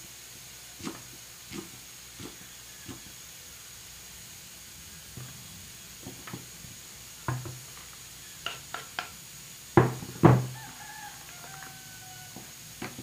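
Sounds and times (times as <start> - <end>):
loud wooden knocks: 9.8 - 10.6.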